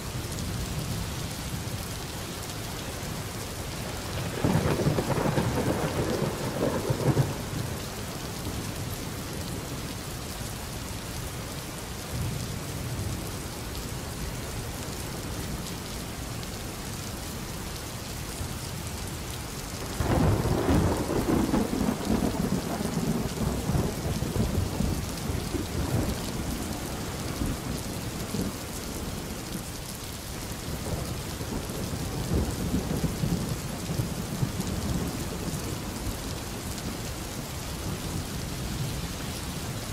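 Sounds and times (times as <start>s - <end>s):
steady rain: 0.0s - 39.9s
rolling thunder: 4.1s - 8.0s, 20.0s - 29.2s.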